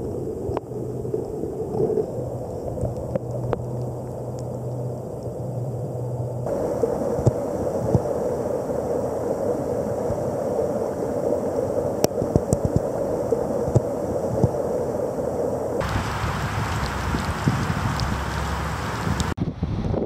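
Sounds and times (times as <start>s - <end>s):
water rushing into creek: 6.5s - 19.4s.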